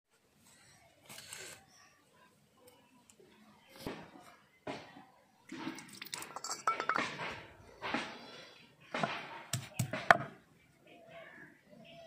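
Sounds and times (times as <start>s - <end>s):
steel bowl clinking and rattling: 5.7s - 7.4s
stone pestle knocking on slab: 9.0s - 10.3s.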